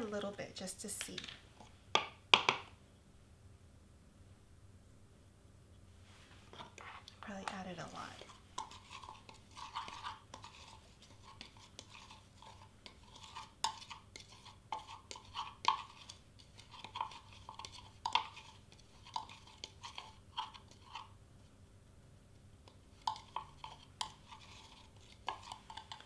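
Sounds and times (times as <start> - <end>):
spoon scraping powder in jar: 6.5 - 21.2, 22.6 - 26.0.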